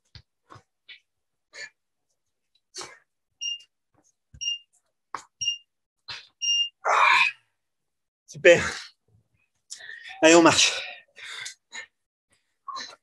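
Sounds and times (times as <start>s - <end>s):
timer beeping: 3.4s - 3.7s, 4.4s - 4.7s, 5.4s - 5.7s, 6.4s - 6.8s
hard breathing: 9.7s - 13.0s.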